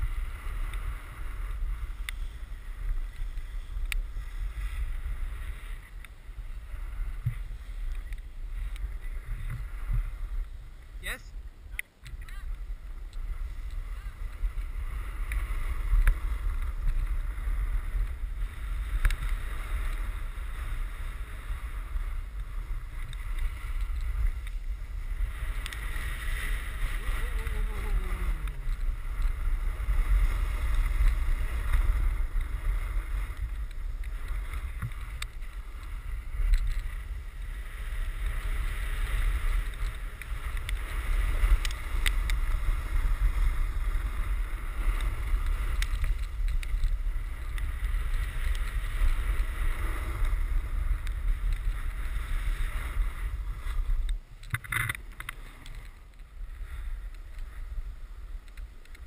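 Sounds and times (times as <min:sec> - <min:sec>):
snowboard sliding on snow: 0:00.0 - 0:11.6, 0:12.3 - 0:58.8
wind buffeting microphone: 0:00.0 - 0:59.0.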